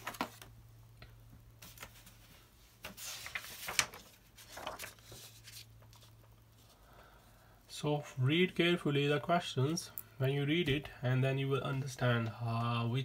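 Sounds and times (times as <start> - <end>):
paper rustling: 0.0 - 0.5, 1.6 - 6.8.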